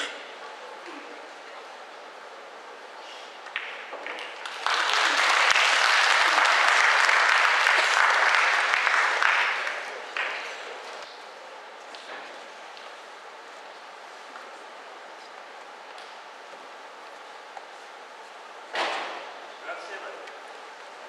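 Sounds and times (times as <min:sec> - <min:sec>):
audience applauding: 0:04.2 - 0:10.6.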